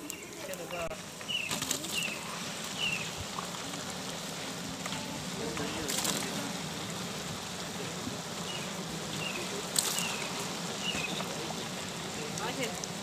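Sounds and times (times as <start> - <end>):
bird chirping: 0.0 - 3.2, 8.4 - 12.0.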